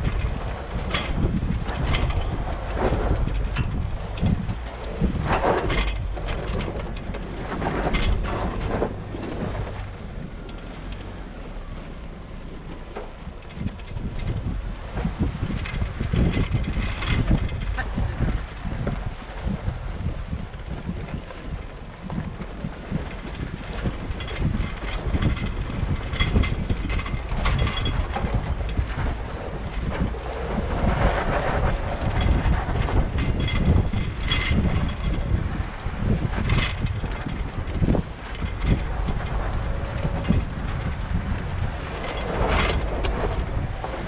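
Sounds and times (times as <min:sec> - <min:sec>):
tyres crunching and clattering: 0:00.0 - 0:11.1, 0:12.6 - 0:44.0
body and suspension rattling: 0:00.0 - 0:44.0
pickup truck rumbling: 0:00.0 - 0:44.0
brief squeaks: 0:21.8 - 0:22.1.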